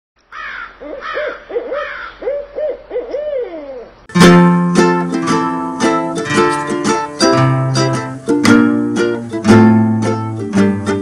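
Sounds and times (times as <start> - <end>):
owl hooting: 0.3 - 4.0
plucked-string music: 4.1 - 11.0.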